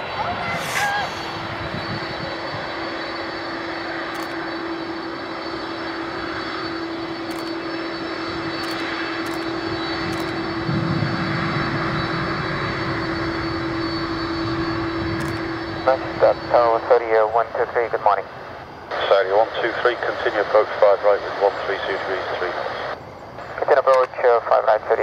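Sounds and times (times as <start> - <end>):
jet engines whining: 0.0 - 25.0
low rumble: 8.3 - 16.9.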